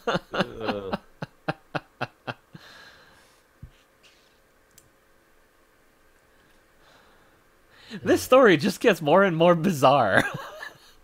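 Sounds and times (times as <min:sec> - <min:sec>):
person laughing: 0:00.0 - 0:02.5.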